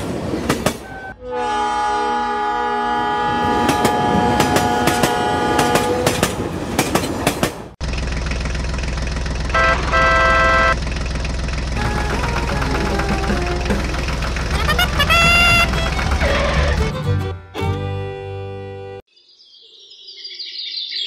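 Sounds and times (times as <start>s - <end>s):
toy train horn: 0.8s - 6.1s, 9.5s - 10.8s, 11.8s - 17.0s
toy tractor horn toots: 0.9s - 6.1s, 9.5s - 10.8s, 11.8s - 17.0s
low engine hum: 7.8s - 17.2s.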